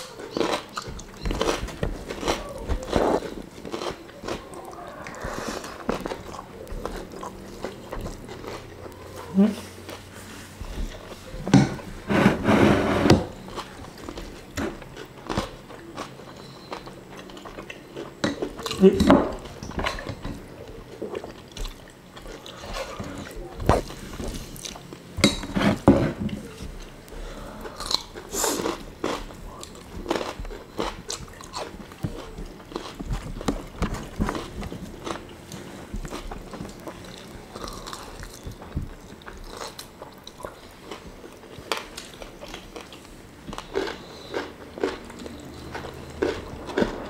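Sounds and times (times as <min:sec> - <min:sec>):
people chewing and crunching: 0:00.0 - 0:47.0.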